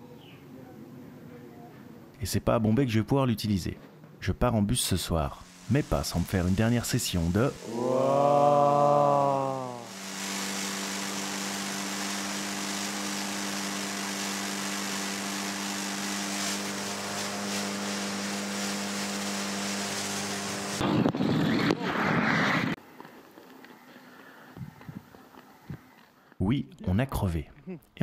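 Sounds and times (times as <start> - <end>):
small motorcycle engine running: 5.4 - 22.8.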